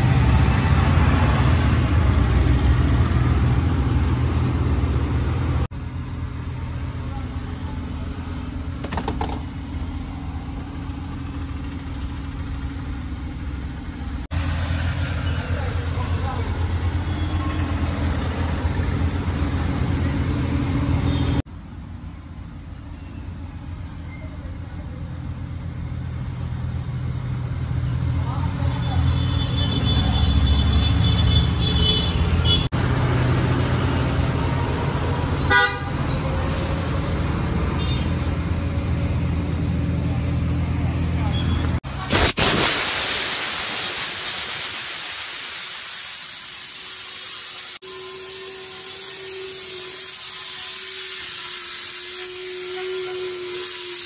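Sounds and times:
vehicle horn toot: 29.0s - 32.7s, 35.4s - 36.1s, 37.8s - 38.1s, 47.8s - 51.1s.

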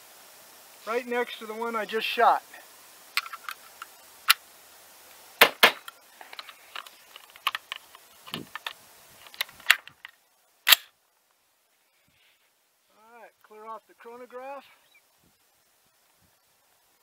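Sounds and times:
rifle action clicking: 10.7s - 10.9s.

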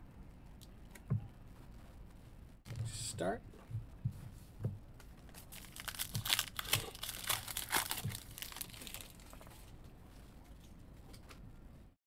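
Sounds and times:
foil wrapper tearing and crinkling: 5.3s - 9.4s.

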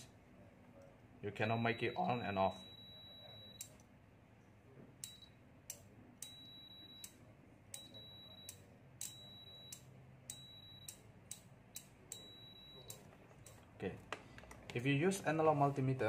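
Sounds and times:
multimeter continuity beep: 1.6s - 3.8s, 5.0s - 5.4s, 6.2s - 13.6s.

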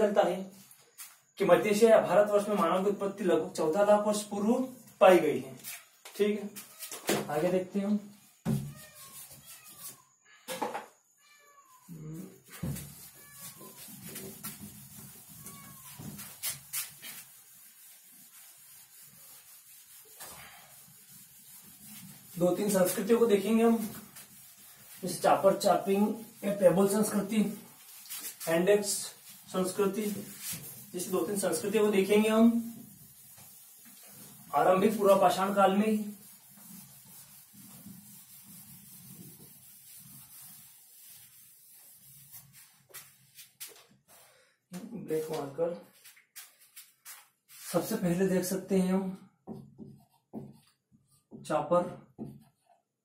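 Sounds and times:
hand rubbing whiteboard: 8.6s - 10.0s, 12.4s - 44.2s, 45.2s - 48.0s, 49.5s - 51.4s.

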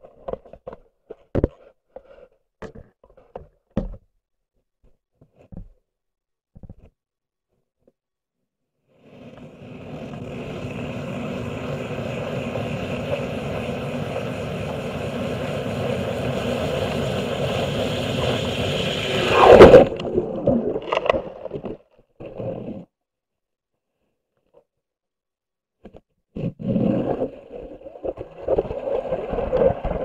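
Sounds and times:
underwater rumbling: 9.2s - 22.7s, 26.7s - 30.0s.

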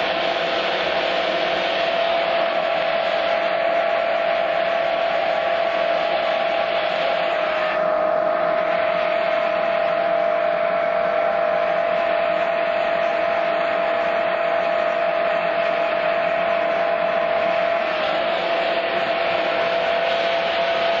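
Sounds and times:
turbine humming with steady tone: 0.0s - 21.0s.

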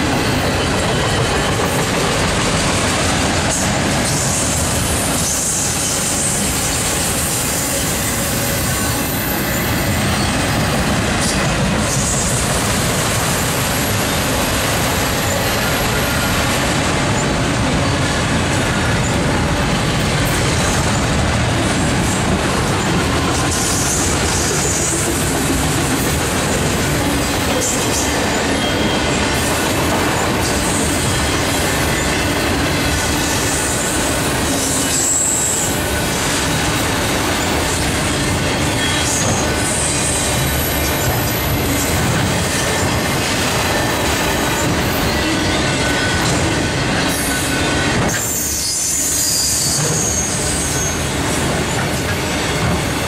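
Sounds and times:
freight train wheels rumbling: 0.0s - 53.0s
faint high wheel squeals: 27.6s - 29.2s, 47.1s - 51.8s.

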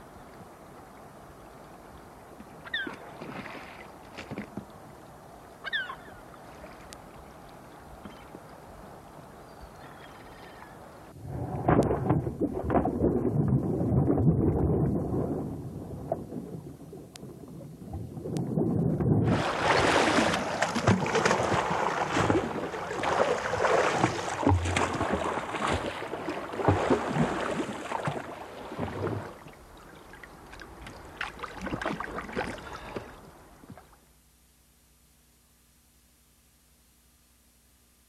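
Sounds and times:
water churning around kayak: 0.0s - 34.0s
loud water splashing: 19.2s - 33.0s.

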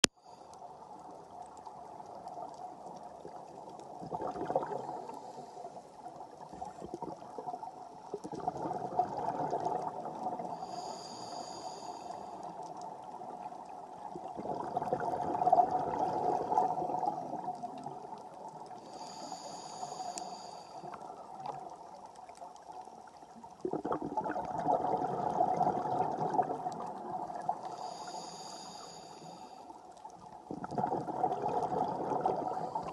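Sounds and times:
exhaled bubbles gurgling: 0.8s - 28.8s, 29.9s - 32.9s
regulator inhale hiss: 4.9s - 6.0s, 10.4s - 12.8s, 18.7s - 21.1s, 27.6s - 29.8s.

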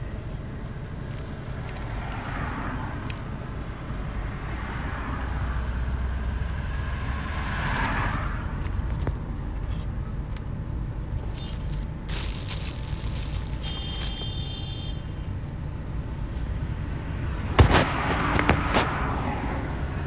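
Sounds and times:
rustling and scraping insulation: 11.2s - 14.5s, 17.6s - 19.2s.

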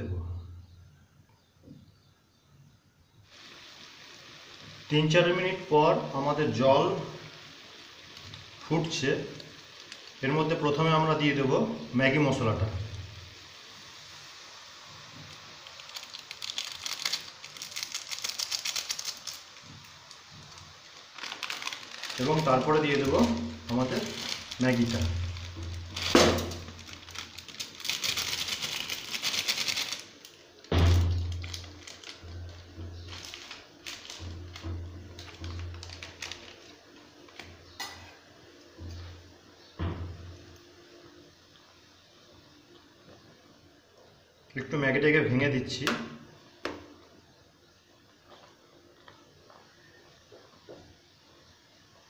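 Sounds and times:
water boiling in a saucepan: 3.0s - 52.0s
sachet crinkling: 7.2s - 10.6s, 15.2s - 37.6s.

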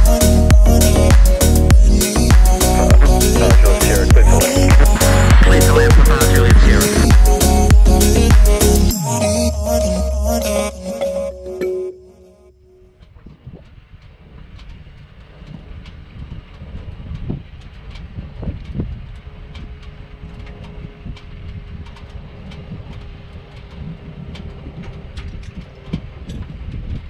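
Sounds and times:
wind buffeting microphone: 13.2s - 27.0s.

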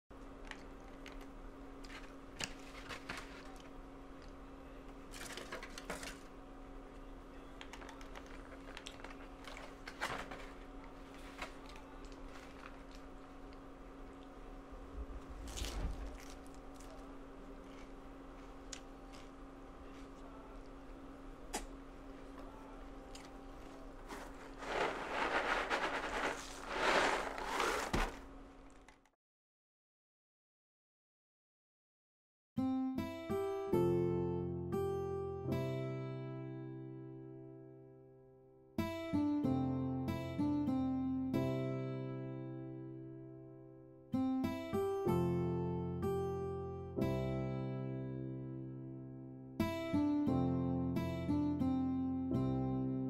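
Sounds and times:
faint hum: 0.1s - 29.1s
styrofoam containers rustling: 1.9s - 3.7s, 5.2s - 6.3s, 7.6s - 13.1s, 23.6s - 29.0s
cereal rattling in a box: 24.0s - 29.0s.

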